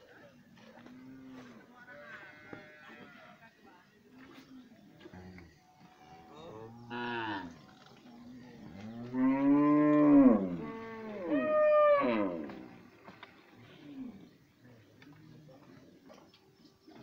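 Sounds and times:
cattle mooing: 8.8 - 12.6.

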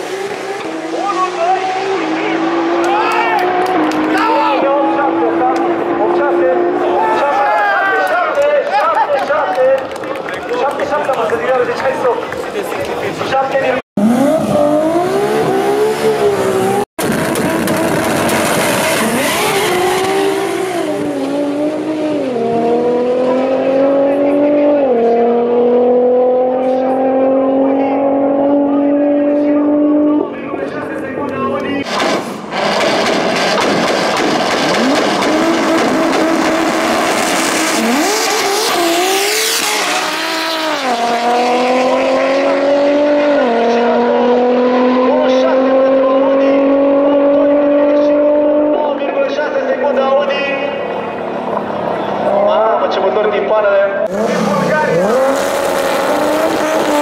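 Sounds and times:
race car engine revving: 0.0 - 7.3, 12.4 - 57.0
race car launching: 14.0 - 24.1, 31.7 - 48.8, 54.0 - 57.0.

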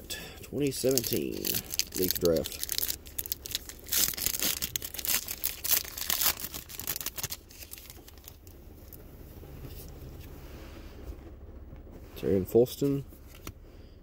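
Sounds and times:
plastic wrapper tearing and crinkling: 0.7 - 8.5.

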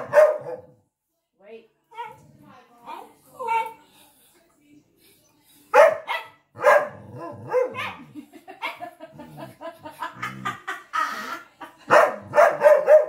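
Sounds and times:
dog barking: 0.0 - 0.8, 5.7 - 8.9, 11.9 - 13.0.

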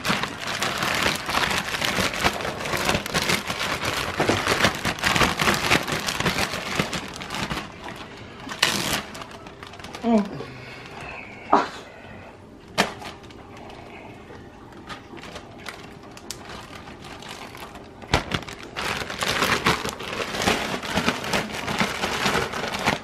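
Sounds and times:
plastic zipper bag crinkling: 0.0 - 11.1, 12.8 - 23.0.

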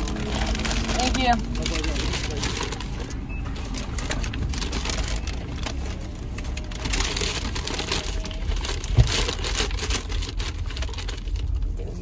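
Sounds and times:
car interior low rumble: 0.0 - 12.0.

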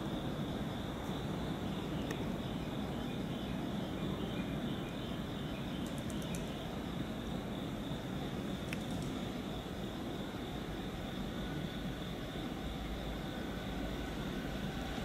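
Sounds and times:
insect trill: 0.0 - 15.0
electric locomotive rumble: 6.8 - 15.0.

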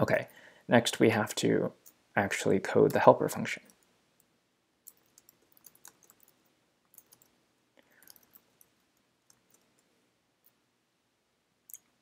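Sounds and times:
computer keyboard typing: 4.8 - 7.3, 8.0 - 9.8.

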